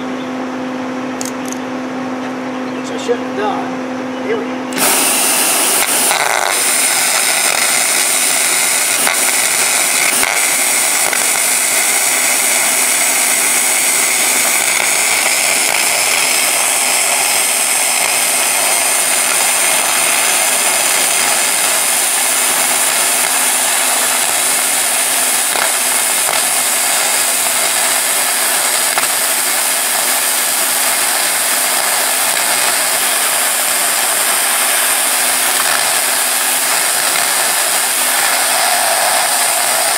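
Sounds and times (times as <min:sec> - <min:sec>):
spray gun hissing: 0:04.8 - 0:39.9.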